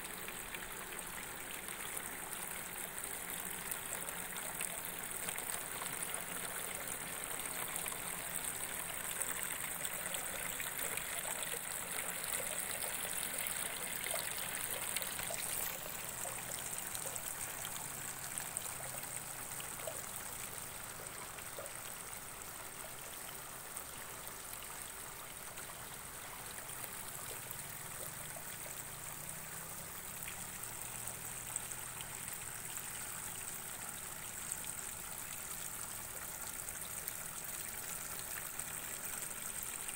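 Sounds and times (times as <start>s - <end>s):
constant high hiss: 0.0s - 39.9s
water trickling: 0.0s - 39.9s.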